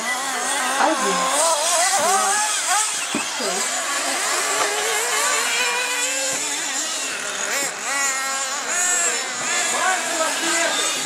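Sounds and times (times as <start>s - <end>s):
small engines revving: 0.0s - 11.0s.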